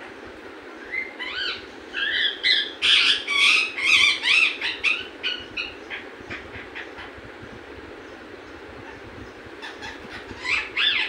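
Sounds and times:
parrot squawking: 0.9s - 7.2s, 9.6s - 11.0s.

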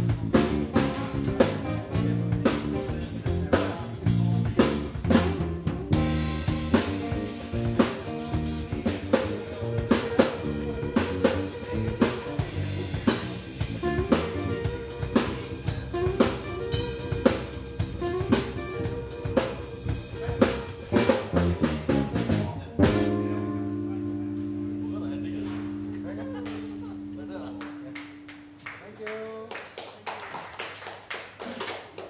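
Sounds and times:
snare and cymbal hits: 0.0s - 23.2s
live jazz-funk band: 0.0s - 28.6s
ringing guitar chord: 22.8s - 28.6s.

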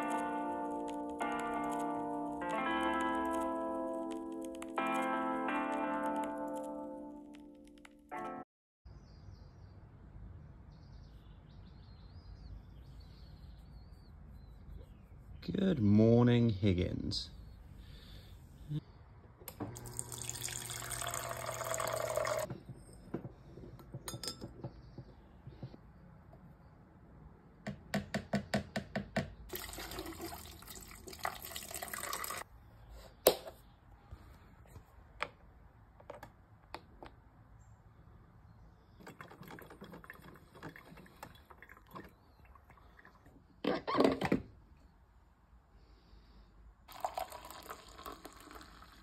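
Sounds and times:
coffee maker spitting and dripping: 19.7s - 22.5s, 46.9s - 49.0s
water pouring into plastic jug: 19.8s - 22.5s, 29.5s - 32.4s, 39.0s - 43.3s, 46.9s - 49.0s.

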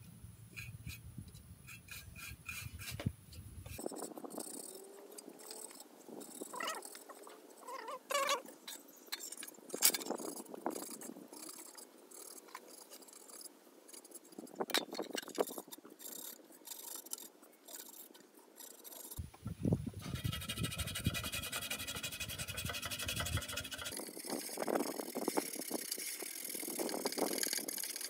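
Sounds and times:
toothbrush scrubbing tin box: 20.1s - 28.0s.

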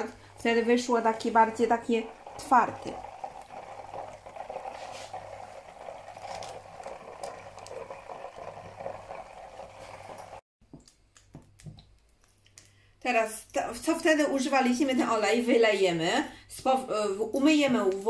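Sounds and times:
oil sizzling in a wok: 0.0s - 10.4s.

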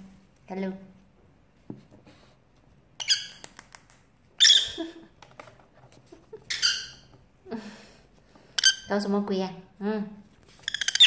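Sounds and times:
lovebird squawking: 4.4s - 4.8s, 6.5s - 7.1s, 10.6s - 11.0s.

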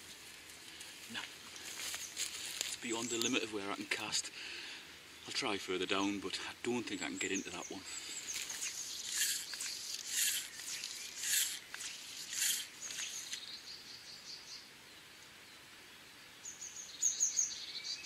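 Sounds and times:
small birds chirping: 0.8s - 14.7s, 15.5s - 18.0s
fly line swishing: 8.4s - 13.4s.

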